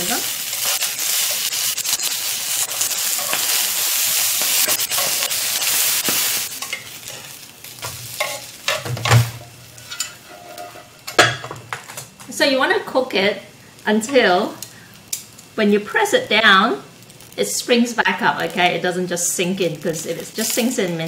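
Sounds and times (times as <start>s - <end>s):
food sizzling in a grill pan: 0.0s - 11.7s, 12.4s - 21.0s
metal tongs clicking on pan: 0.5s - 3.6s, 4.4s - 8.8s.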